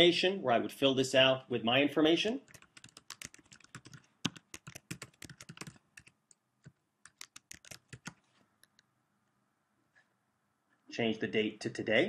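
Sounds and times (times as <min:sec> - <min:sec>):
typing on computer keyboard: 0:02.5 - 0:08.8.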